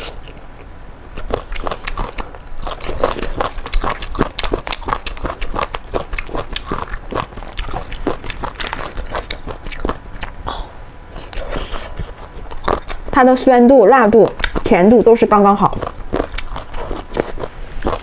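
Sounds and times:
crunchy chewing: 0.0 - 13.2, 14.2 - 14.7, 15.6 - 18.0.

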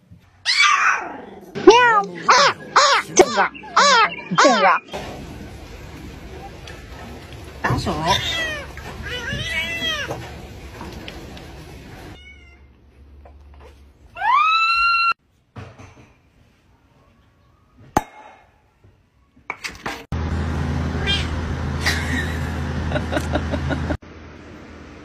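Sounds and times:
cats meowing and yowling: 0.4 - 4.9, 7.9 - 10.3, 14.2 - 15.2, 21.0 - 21.4.

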